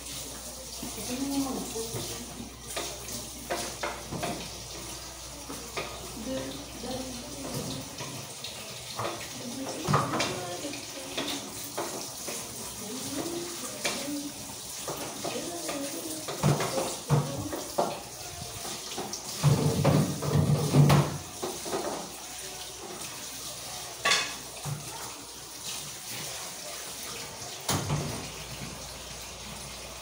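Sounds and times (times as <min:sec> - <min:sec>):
tap water running: 0:00.0 - 0:30.0
dishes clinking: 0:24.0 - 0:24.8.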